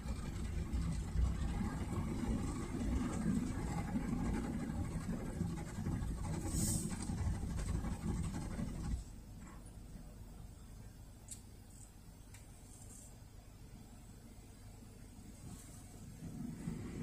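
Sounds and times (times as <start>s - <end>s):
faint scratch: 2.5s - 9.1s.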